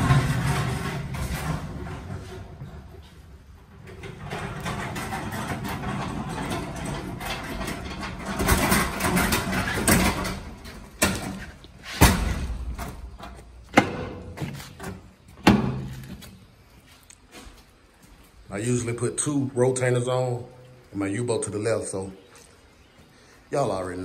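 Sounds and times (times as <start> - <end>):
cart banging over metal plate: 0.0 - 3.1, 3.7 - 16.1
cart wheels rumbling: 0.0 - 15.2.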